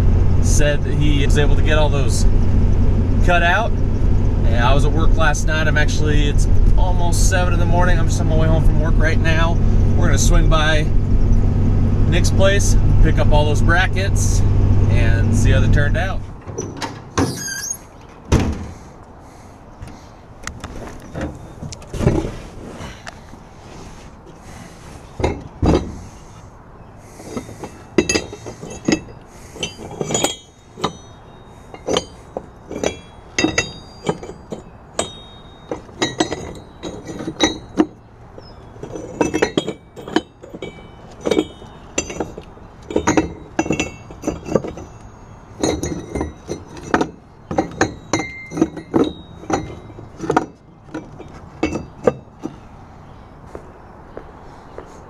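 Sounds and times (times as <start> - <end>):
metal parts clinking and clanking: 15.0 - 18.8, 27.2 - 52.7
heavy thump: 18.3 - 18.8.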